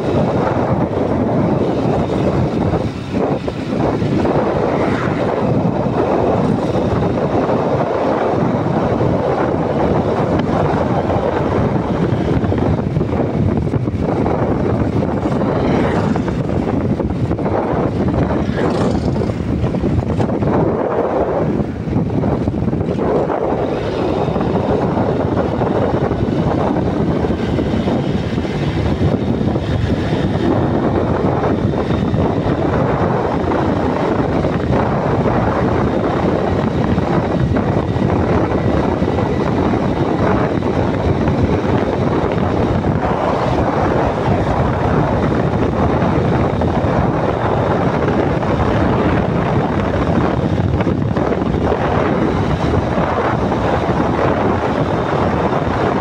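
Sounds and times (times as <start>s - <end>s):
wind on microphone: 0.0s - 56.0s.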